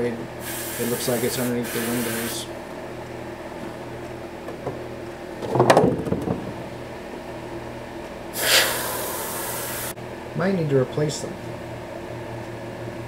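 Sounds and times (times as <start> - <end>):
steady low hum: 0.0 - 13.0
airbrush spraying hiss: 0.4 - 2.5, 8.4 - 10.0.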